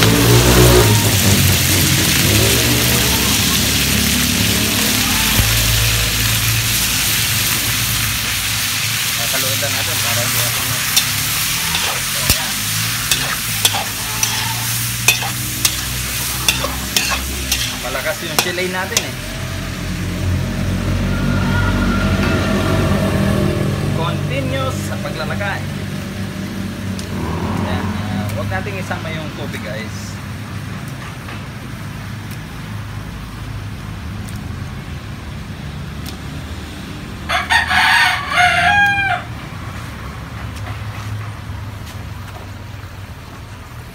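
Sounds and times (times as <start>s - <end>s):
food sizzling in hot oil: 0.0s - 21.4s
rooster crowing: 2.6s - 6.2s, 13.2s - 15.2s, 37.2s - 39.4s.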